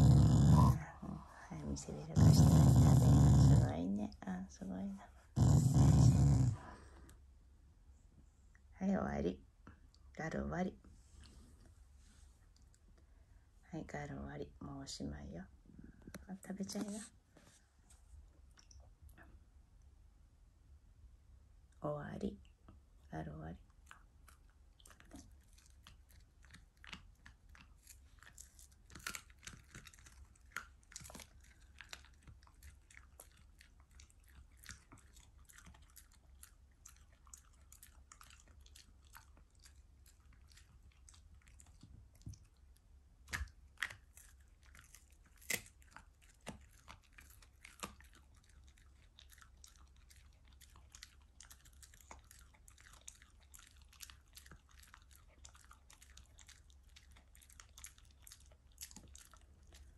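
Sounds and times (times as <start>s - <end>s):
dog crunching food: 0.0s - 0.8s, 1.6s - 3.7s, 23.8s - 59.9s.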